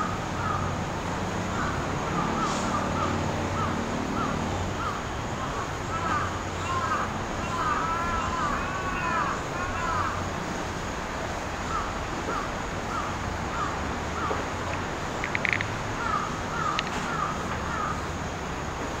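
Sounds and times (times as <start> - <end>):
steady background hiss: 0.0 - 19.0
cluster of clicks: 14.7 - 15.8, 16.7 - 17.1.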